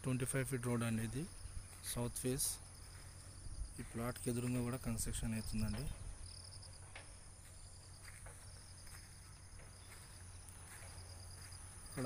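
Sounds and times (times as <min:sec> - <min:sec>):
insects chirping in trills: 0:00.0 - 0:12.0.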